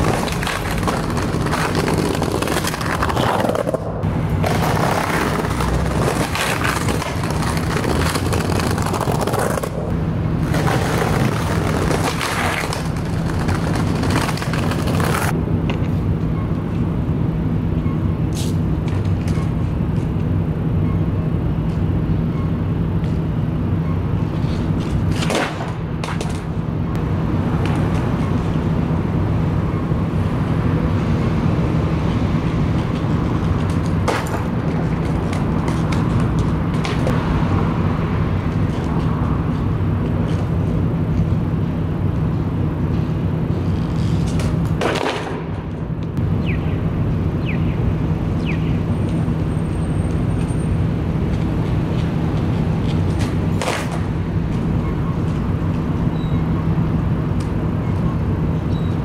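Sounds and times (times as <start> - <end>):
skateboard clacking down: 0.0 - 15.3
low city rumble: 0.0 - 59.0.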